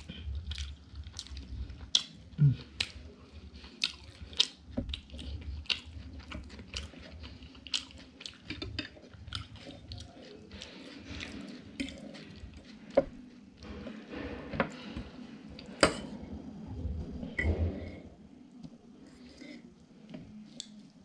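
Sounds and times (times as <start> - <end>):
person chewing food: 0.0 - 14.0.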